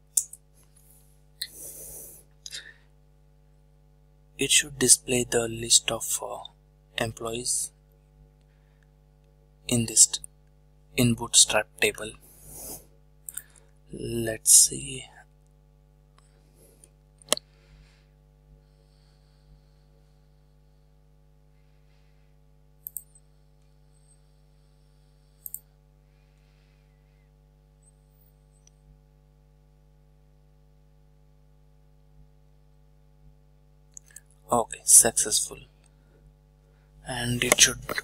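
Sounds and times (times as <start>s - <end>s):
faint electrical hum: 0.0s - 38.0s
computer mouse clicks: 22.8s - 23.2s, 25.4s - 25.7s.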